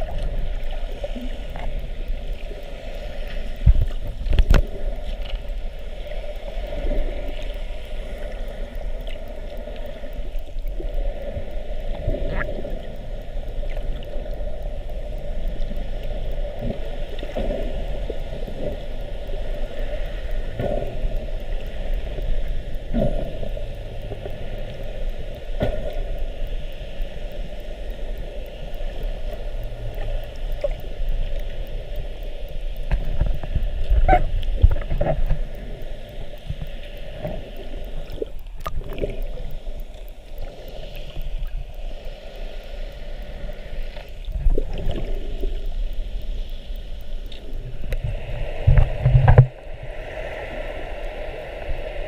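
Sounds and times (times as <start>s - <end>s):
gurgling water: 0.0s - 52.0s
muffled underwater rumble: 0.0s - 52.0s.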